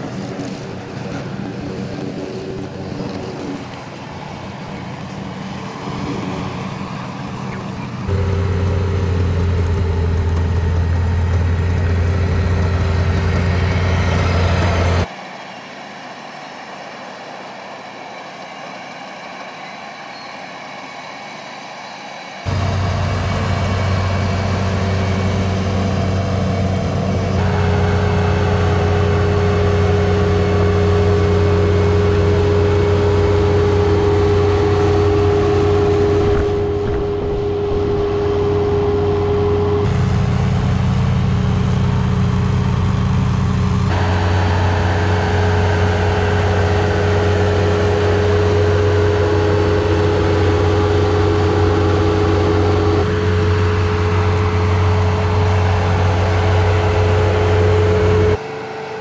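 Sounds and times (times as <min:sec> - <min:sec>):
diesel engine droning under load: 0:00.0 - 0:59.0.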